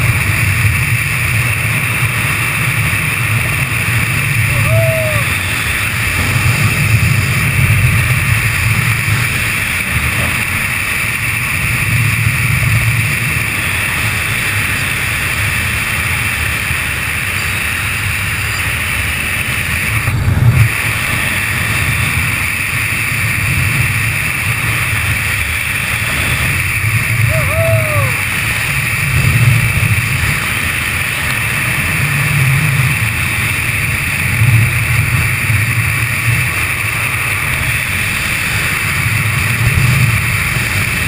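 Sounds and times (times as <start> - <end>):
wind roar on microphone: 0.0 - 41.0.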